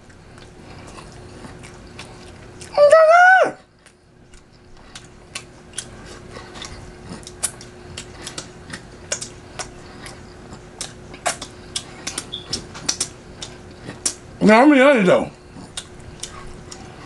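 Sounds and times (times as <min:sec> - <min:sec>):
faint steady hum: 0:00.0 - 0:17.0
eating clicks: 0:03.8 - 0:14.2, 0:15.4 - 0:17.0.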